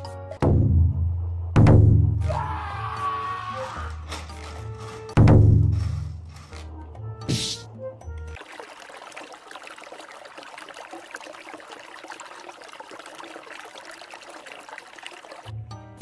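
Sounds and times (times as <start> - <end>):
cat urinating in litter: 8.4 - 15.5.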